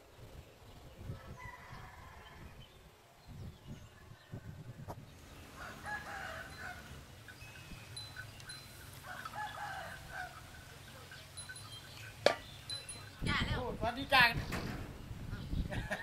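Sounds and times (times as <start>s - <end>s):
rooster crowing: 5.6s - 7.0s, 9.0s - 10.7s.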